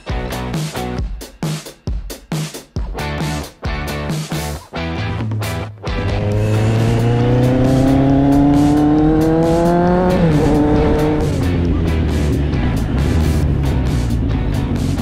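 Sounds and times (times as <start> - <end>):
motorcycle engine accelerating: 5.9 - 15.0.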